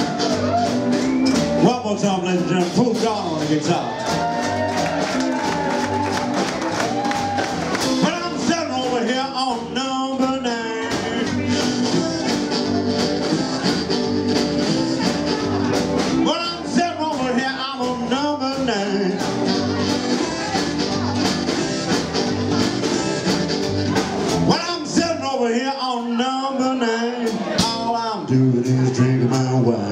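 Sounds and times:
electric guitar: 0.0s - 25.2s
double bass: 0.0s - 29.9s
drums: 0.0s - 29.9s
blues harmonica: 4.0s - 24.8s
person singing: 7.8s - 29.9s.

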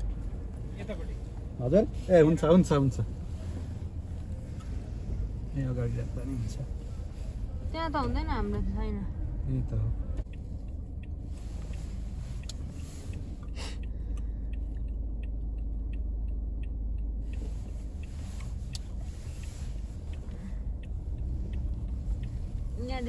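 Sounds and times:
car engine and tyres rumbling: 0.0s - 23.0s
faint ticks: 8.4s - 23.0s.

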